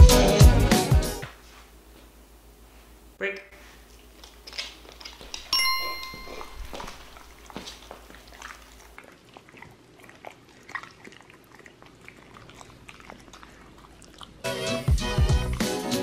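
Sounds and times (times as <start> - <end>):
music: 0.0 - 1.3, 14.4 - 16.0
dog licking wet smacks: 6.3 - 14.8.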